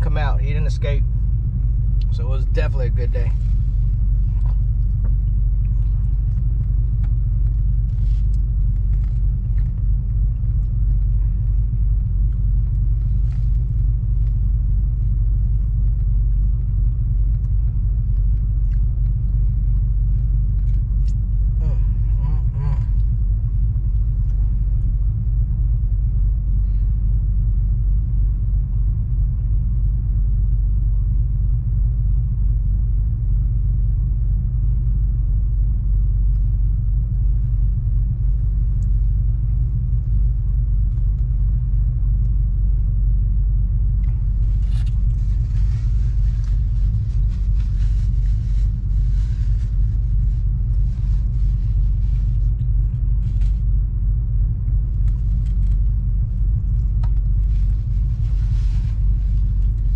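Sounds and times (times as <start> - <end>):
truck idling rumble: 0.0 - 59.9
faint crackling of food: 3.4 - 21.6.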